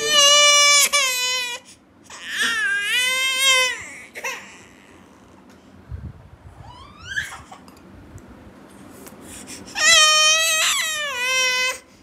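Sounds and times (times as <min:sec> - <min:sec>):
baby crying: 0:00.0 - 0:05.2, 0:09.7 - 0:11.9.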